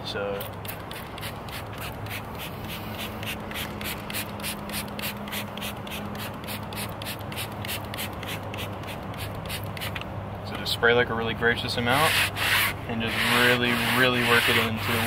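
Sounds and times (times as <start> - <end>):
pad scrubbing tire: 11.9 - 15.0.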